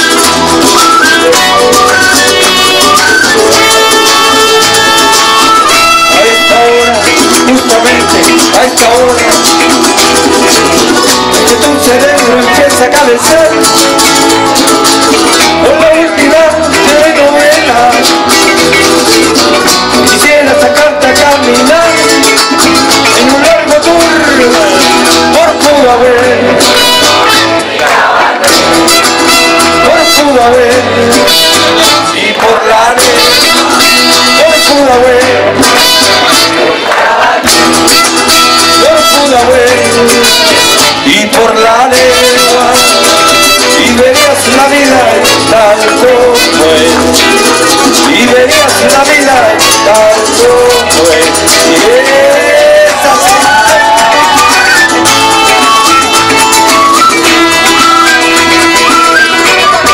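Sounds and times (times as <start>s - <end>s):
electric bass: 0.0s - 27.8s, 28.4s - 36.8s, 37.4s - 59.9s
strummed acoustic-electric guitar: 0.0s - 59.9s.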